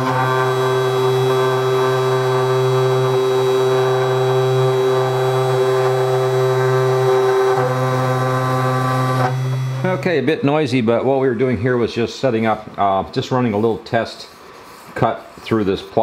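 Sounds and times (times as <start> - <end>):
router spindle motor whine: 0.0 - 10.2.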